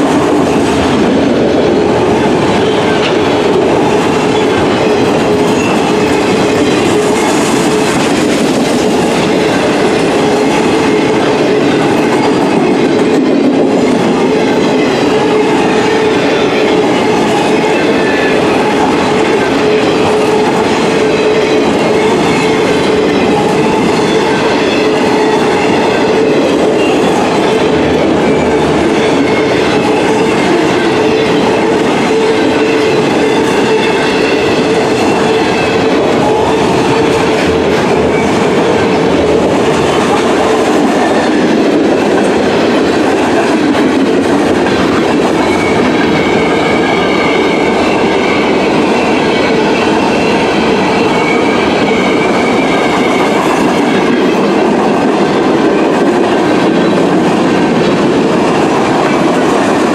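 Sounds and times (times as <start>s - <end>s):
steel wheels on rail: 0.0s - 59.9s.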